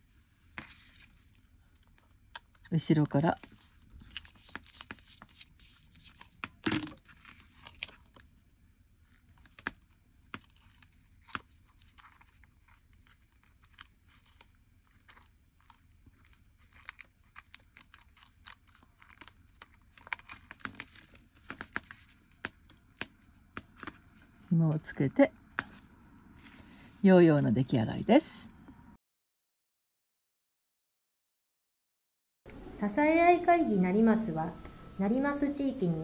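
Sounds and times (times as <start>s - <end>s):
paper rustling and crinkling: 0.5s - 2.1s, 3.4s - 8.5s, 9.1s - 24.5s.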